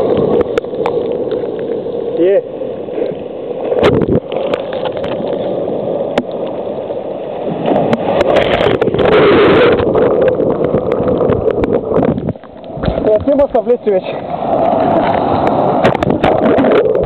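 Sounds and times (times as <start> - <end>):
surf washing over sand: 7.4 - 17.0.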